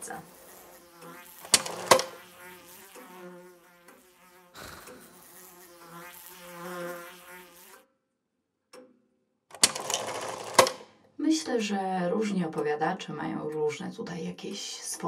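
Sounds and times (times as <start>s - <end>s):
wavering buzzing drone: 0.0s - 7.8s.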